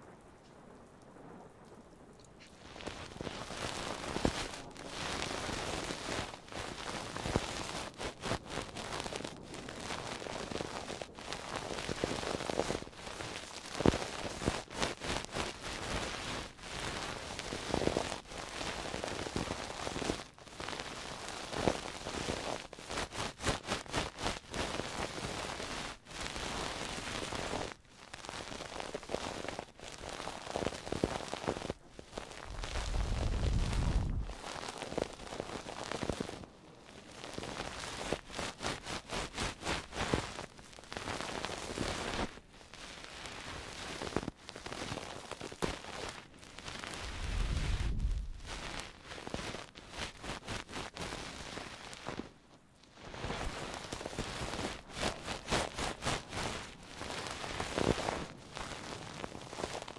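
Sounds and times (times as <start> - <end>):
object scratching against microphone: 32.3 - 34.4, 47.0 - 48.8.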